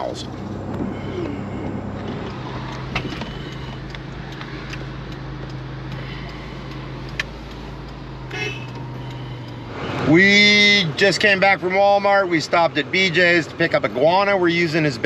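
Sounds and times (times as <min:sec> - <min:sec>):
vehicle engine hum: 0:00.0 - 0:15.0
sharp clicks: 0:02.2 - 0:09.6.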